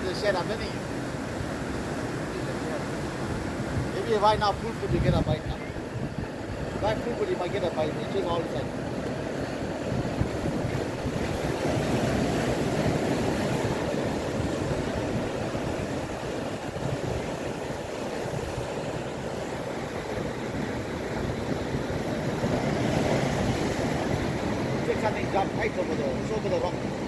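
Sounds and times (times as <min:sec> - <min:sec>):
surf washing over rocks: 0:00.0 - 0:27.0
wind rumbling on microphone: 0:00.0 - 0:27.0.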